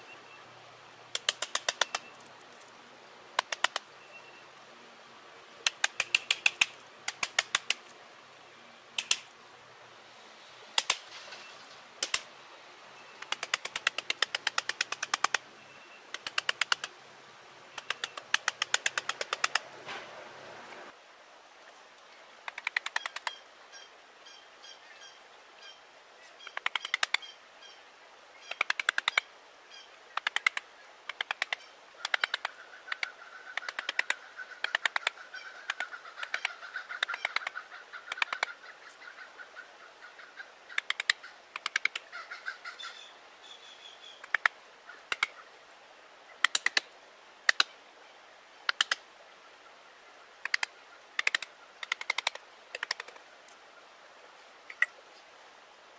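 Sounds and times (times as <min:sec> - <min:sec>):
birds chattering chirps: 0:22.8 - 0:45.5.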